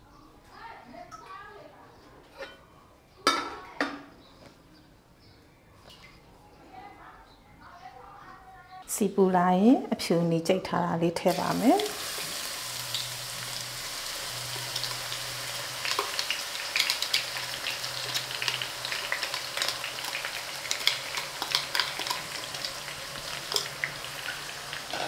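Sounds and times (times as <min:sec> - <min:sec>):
hot oil sizzling and crackling: 0:11.3 - 0:25.0.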